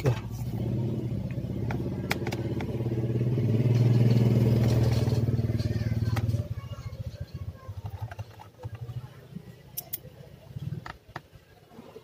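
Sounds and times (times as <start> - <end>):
small engine running: 0.4 - 6.7.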